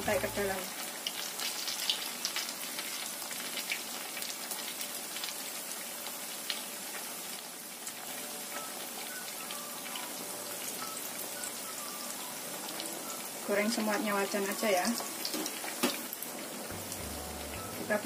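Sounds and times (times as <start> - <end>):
deep-frying sizzle: 0.0 - 18.0.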